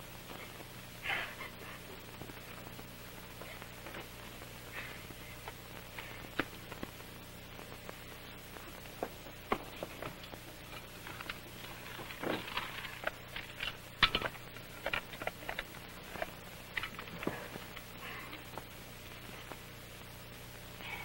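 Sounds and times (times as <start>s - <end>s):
steady low hum: 0.0s - 21.0s
small objects clicking and clinking: 10.2s - 17.3s.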